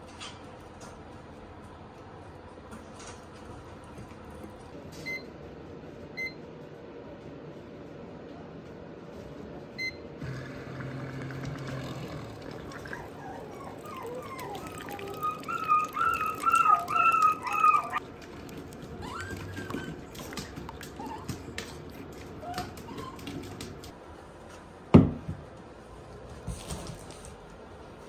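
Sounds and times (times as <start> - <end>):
puppies whimpering: 12.7 - 18.0, 18.9 - 23.5.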